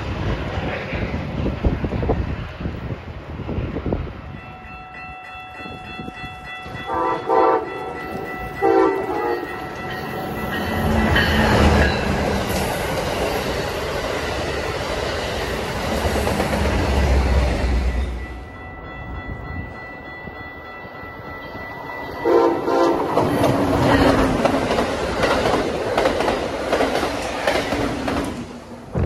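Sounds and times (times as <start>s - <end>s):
train rushing past: 0.0s - 29.0s
train horn blasts: 6.8s - 8.0s, 8.6s - 9.6s, 22.2s - 23.1s.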